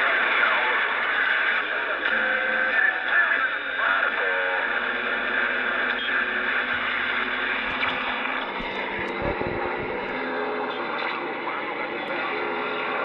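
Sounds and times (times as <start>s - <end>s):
radio hiss and static: 0.0s - 13.0s
warbling radio whistles: 4.2s - 10.4s
low thumps: 7.6s - 10.2s.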